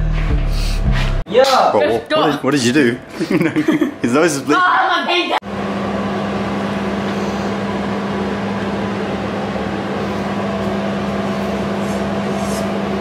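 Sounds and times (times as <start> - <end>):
machine hum: 2.1 - 13.0.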